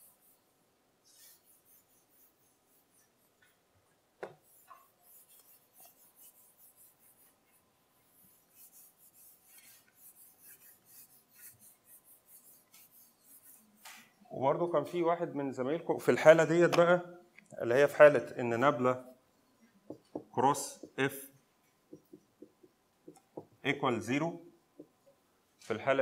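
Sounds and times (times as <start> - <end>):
whiteboard eraser rubbing: 0.0 - 3.6, 4.2 - 14.2, 21.9 - 23.5.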